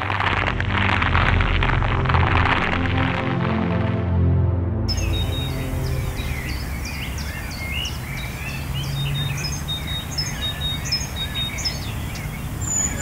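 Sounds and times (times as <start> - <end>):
low background rumble: 0.0 - 13.0
songbirds chirping and trilling: 4.9 - 13.0.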